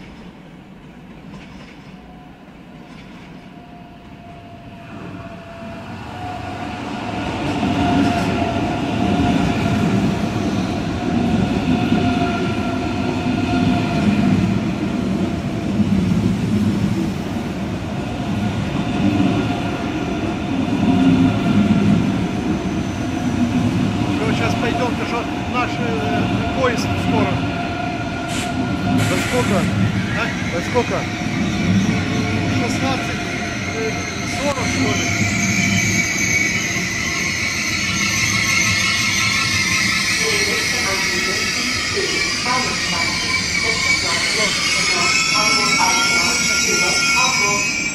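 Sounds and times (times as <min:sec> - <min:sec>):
train wheels rumbling on track: 0:00.0 - 0:47.9
high-pitched train whine: 0:19.0 - 0:47.9.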